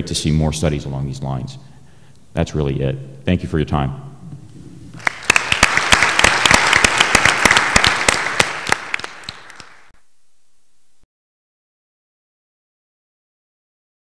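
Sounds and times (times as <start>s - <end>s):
audience applauding: 5.0s - 10.0s.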